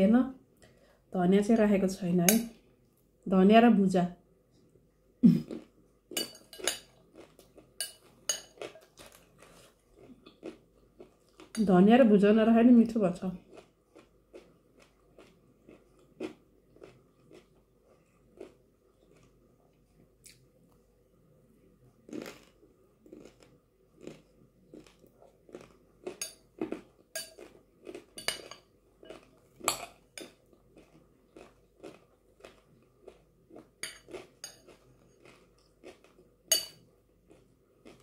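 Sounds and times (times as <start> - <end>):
chewing and crunching: 5.5 - 11.6, 13.4 - 20.8, 22.1 - 36.3, 37.2 - 38.0
metal spoon clinking on glass bowl: 6.2 - 6.9, 7.8 - 8.6, 27.2 - 27.4, 36.5 - 36.8.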